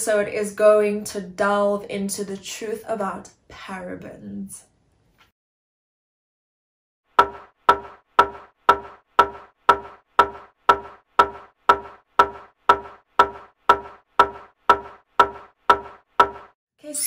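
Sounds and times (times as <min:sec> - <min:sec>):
sharp ringing knocks: 0:07.2 - 0:16.6.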